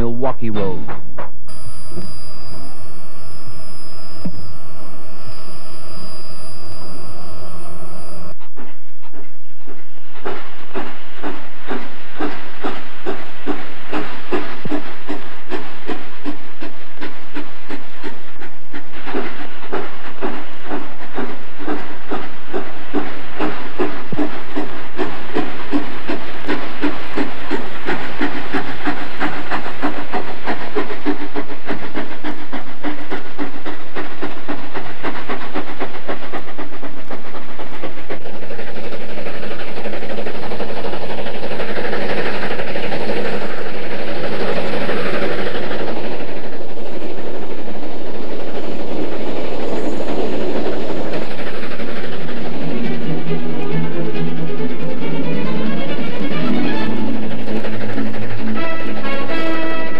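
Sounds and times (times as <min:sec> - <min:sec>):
steam locomotive chuffing: 0:04.8 - 0:59.9.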